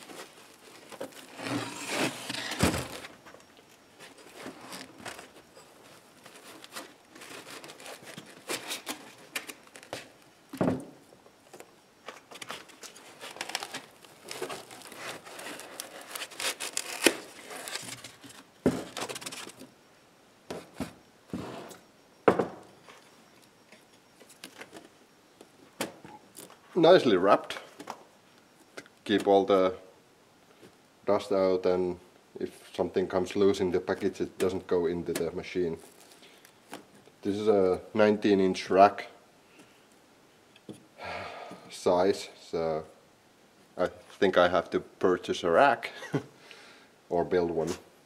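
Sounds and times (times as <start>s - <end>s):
foam and plastic wrapping crinkling: 0.0s - 10.2s, 12.1s - 19.7s.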